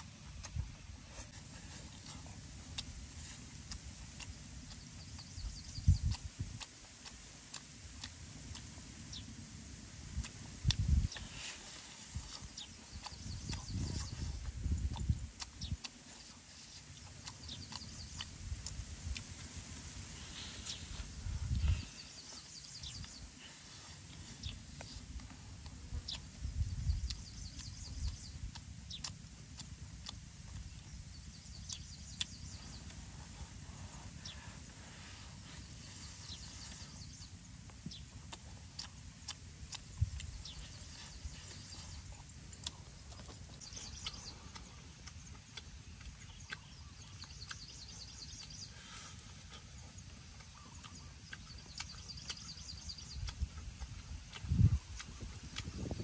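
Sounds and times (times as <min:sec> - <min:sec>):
sharp mouth clicks: 0:00.0 - 0:09.3, 0:10.0 - 0:34.5, 0:35.4 - 0:56.0
wet chewing and lip-smacking: 0:00.0 - 0:56.0.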